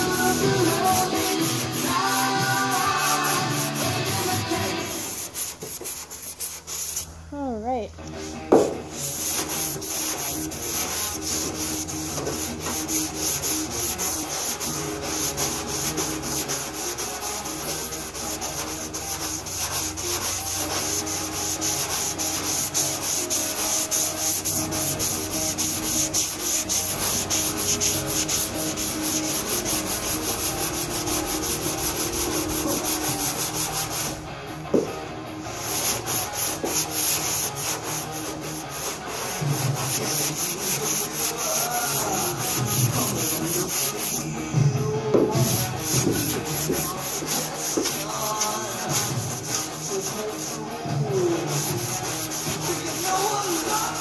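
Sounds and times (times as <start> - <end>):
sandpaper rubbing back and forth: 0.0 - 7.1, 8.9 - 34.2, 35.4 - 44.4, 45.2 - 54.0.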